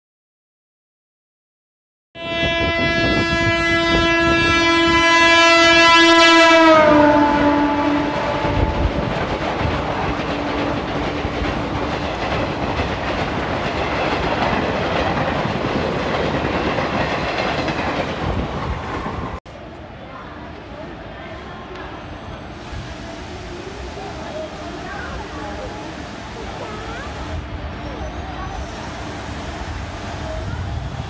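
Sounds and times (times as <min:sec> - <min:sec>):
train horn blast: 0:02.2 - 0:09.1
train coaches rumbling on rails: 0:02.2 - 0:31.0.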